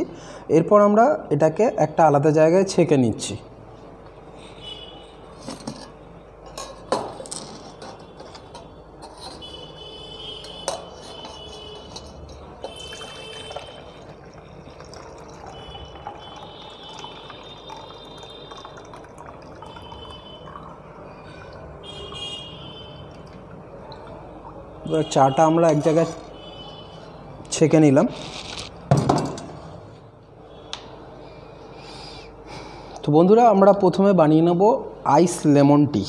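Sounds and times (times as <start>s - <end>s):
tea pouring through a strainer: 11.7s - 20.8s.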